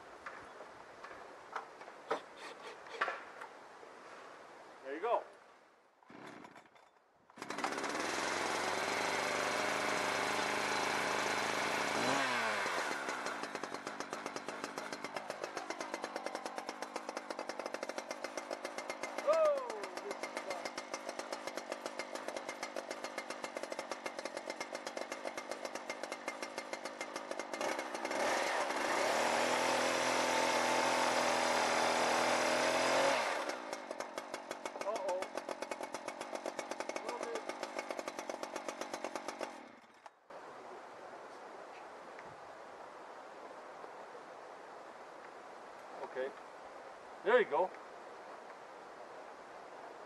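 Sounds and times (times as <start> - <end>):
chainsaw running: 7.3 - 40.1.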